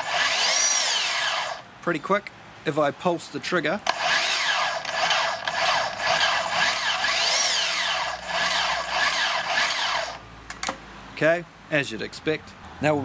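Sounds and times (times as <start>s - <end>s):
track saw motor whine: 0.0s - 1.6s, 3.9s - 10.2s.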